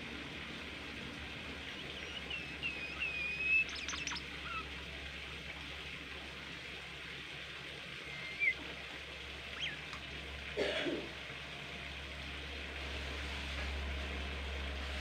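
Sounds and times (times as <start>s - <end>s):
steady low hum: 0.0s - 15.0s
songbird whistled calls: 1.8s - 4.7s, 8.0s - 8.6s, 9.6s - 9.9s.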